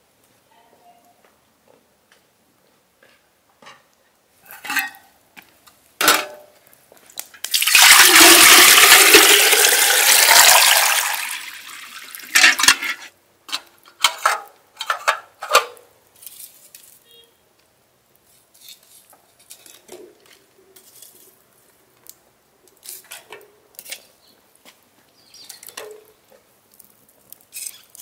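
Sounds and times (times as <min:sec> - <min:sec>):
water pouring from a jug: 0:07.4 - 0:13.0.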